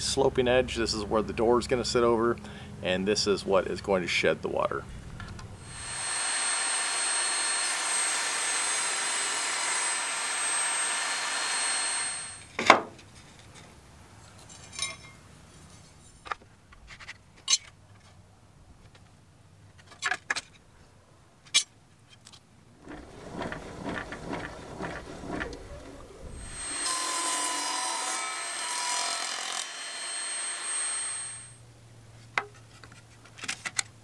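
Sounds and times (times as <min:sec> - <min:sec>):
saw cutting a board: 0:05.6 - 0:12.5, 0:22.8 - 0:31.6
table saw whining: 0:05.6 - 0:12.5, 0:22.8 - 0:31.6.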